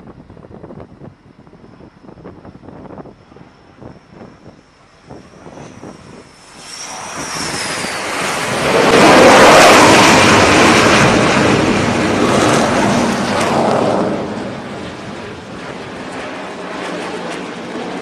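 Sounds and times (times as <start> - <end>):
jet engines whining: 0.0 - 18.0
jet touching down: 0.1 - 18.0.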